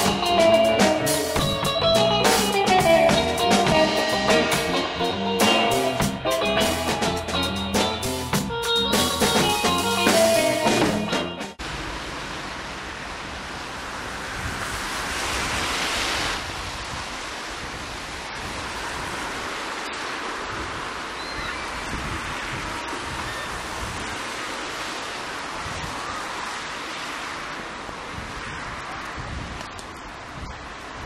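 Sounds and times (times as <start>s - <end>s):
traffic on wet street: 0.0s - 8.2s, 11.6s - 31.0s
rock band music: 0.0s - 11.6s.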